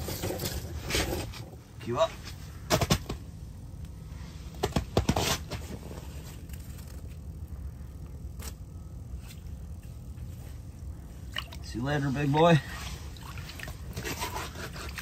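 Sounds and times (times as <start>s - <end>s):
knocks and rustles handling fish: 0.0s - 1.6s, 2.2s - 3.3s, 4.5s - 7.0s, 12.6s - 15.0s
steady low rumble: 0.0s - 15.0s.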